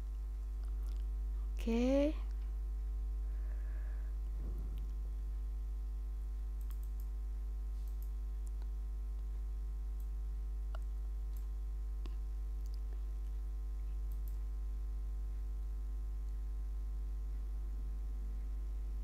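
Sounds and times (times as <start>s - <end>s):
low mains hum: 0.0s - 19.0s
faint computer clicks: 6.6s - 7.2s, 7.8s - 9.3s, 10.0s - 13.3s, 14.0s - 14.5s.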